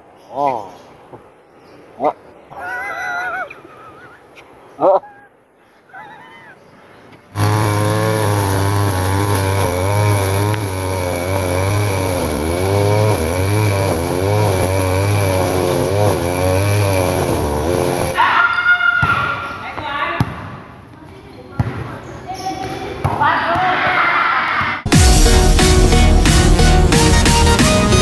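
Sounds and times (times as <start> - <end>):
small engine revving unevenly: 7.4 - 18.2.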